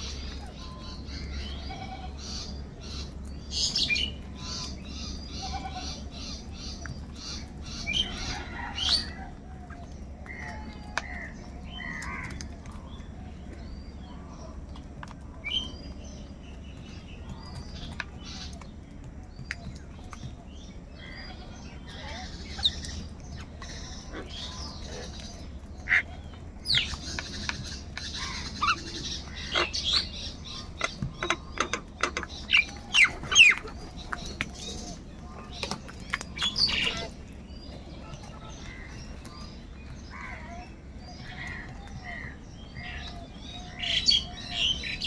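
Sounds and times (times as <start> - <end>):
small birds chirping faintly: 0.0 - 45.0
crows cawing: 10.3 - 12.4, 41.2 - 43.0.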